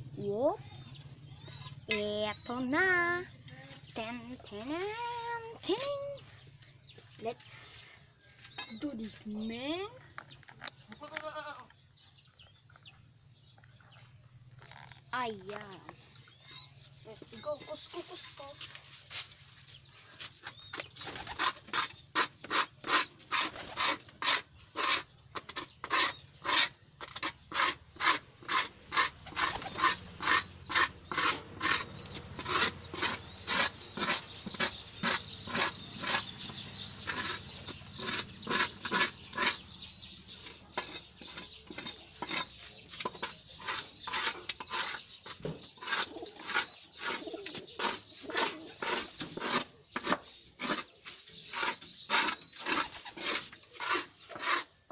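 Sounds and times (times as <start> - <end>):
hand scraper rasping over floor: 20.4 - 54.9.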